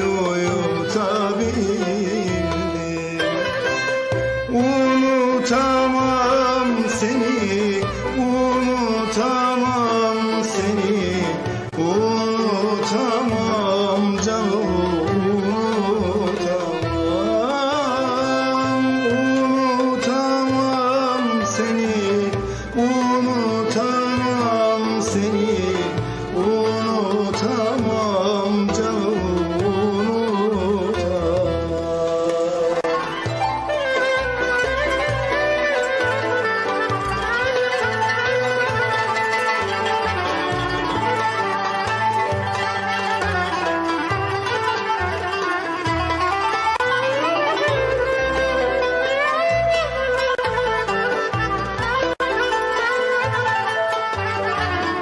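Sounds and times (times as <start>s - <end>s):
man singing into microphone: 0.0s - 33.2s.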